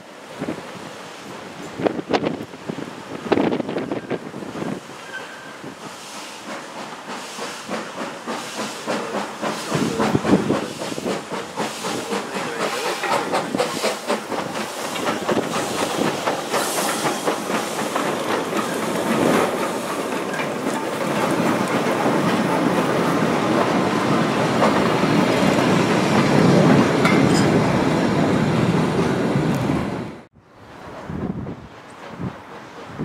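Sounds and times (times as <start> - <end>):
hissing steam: 0.0 - 30.0
steam locomotive exhaust beats: 1.6 - 29.8
wagons clattering over rail joints: 7.7 - 27.8.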